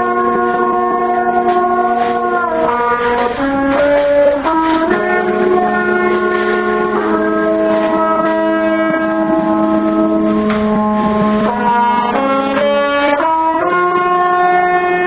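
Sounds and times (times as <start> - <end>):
brass horns playing long notes: 0.0 - 15.0.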